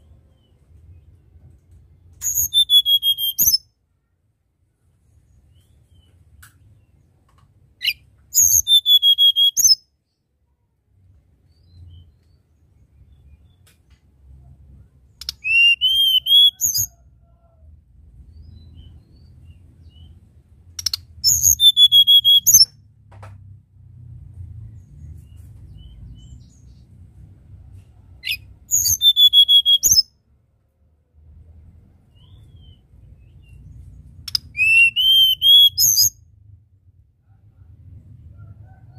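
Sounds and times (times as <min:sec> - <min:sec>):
faint low rumble: 0:00.0 - 0:02.6, 0:10.1 - 0:15.4, 0:16.6 - 0:21.7, 0:22.6 - 0:28.9, 0:30.1 - 0:34.6, 0:36.1 - 0:38.9
bird singing high whistled notes: 0:02.2 - 0:03.7, 0:07.8 - 0:09.9, 0:15.2 - 0:17.0, 0:20.8 - 0:22.7, 0:28.2 - 0:30.1, 0:32.1 - 0:33.7, 0:34.3 - 0:36.2.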